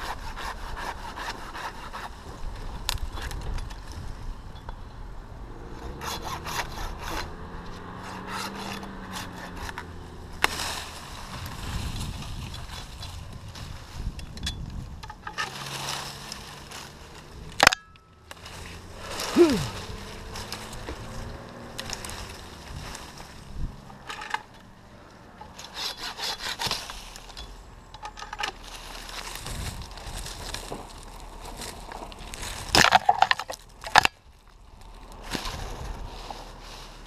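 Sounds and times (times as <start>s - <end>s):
saw cutting wood: 0.0s - 2.2s, 5.8s - 11.1s, 25.4s - 27.4s
wood cracking: 1.2s - 4.1s, 6.0s - 24.7s, 25.4s - 36.0s.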